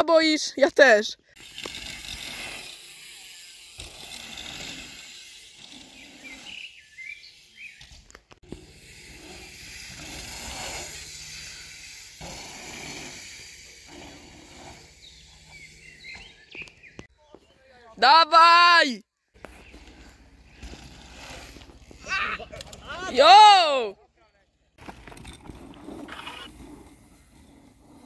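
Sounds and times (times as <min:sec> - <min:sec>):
steady outdoor hiss: 0:00.8 - 0:28.0
faint bird chirps: 0:14.9 - 0:18.0.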